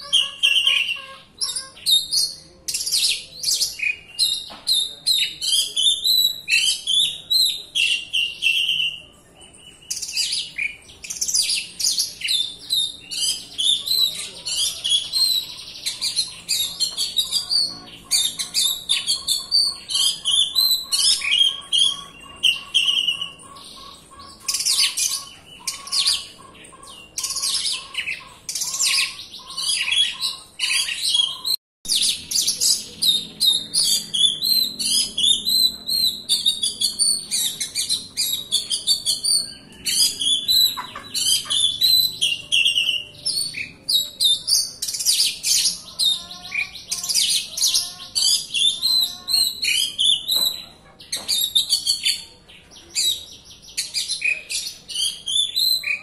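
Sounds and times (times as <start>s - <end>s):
bird singing whistles and trills: 27.1s - 47.5s, 48.1s - 56.0s.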